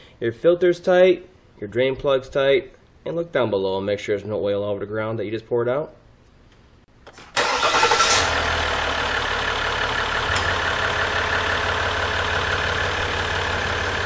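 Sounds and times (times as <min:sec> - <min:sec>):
diesel engine idling: 0:07.4 - 0:14.0.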